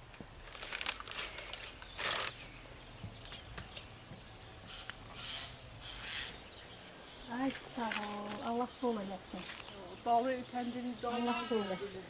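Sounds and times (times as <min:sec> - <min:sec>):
baking paper rustling: 0:00.4 - 0:02.6.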